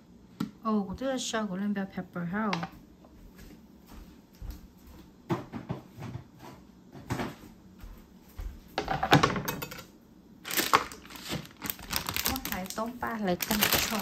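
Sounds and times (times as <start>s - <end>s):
cutting board and knife clattering: 8.8s - 9.9s.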